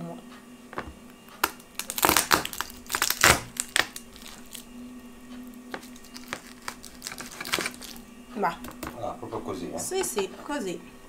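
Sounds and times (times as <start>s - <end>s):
garlic crushed under knife blade: 0.8s - 4.7s, 5.7s - 8.0s.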